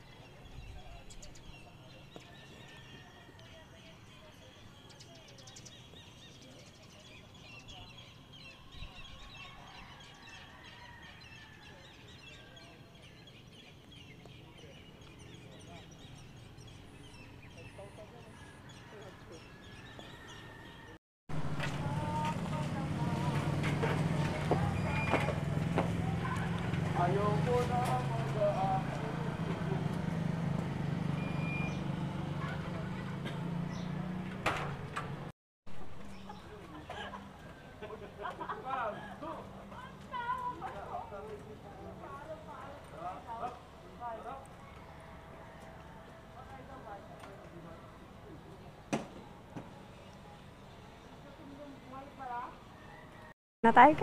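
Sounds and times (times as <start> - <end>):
small birds chirping: 0.0 - 21.0, 31.2 - 34.2
faint outdoor background noise: 0.0 - 54.0.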